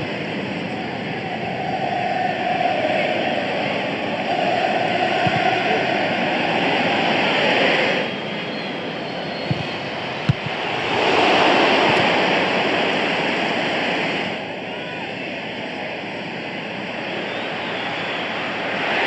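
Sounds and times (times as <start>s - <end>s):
stadium crowd roar: 0.0s - 19.0s
short sharp thuds: 9.5s - 10.7s.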